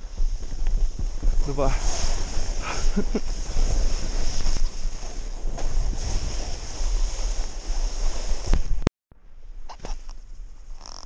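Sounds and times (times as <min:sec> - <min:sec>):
wind rushing over microphone: 0:00.0 - 0:08.9
snowboard hissing through powder: 0:00.3 - 0:08.6.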